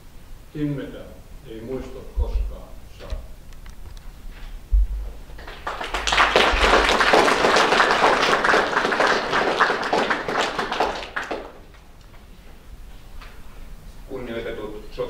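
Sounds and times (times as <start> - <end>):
low thump: 4.7 - 5.3
audience applauding: 5.3 - 12.0.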